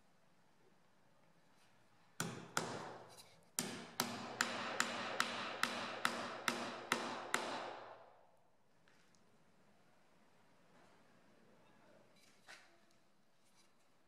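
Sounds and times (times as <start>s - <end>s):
hammer blows on nails: 2.2s - 8.1s.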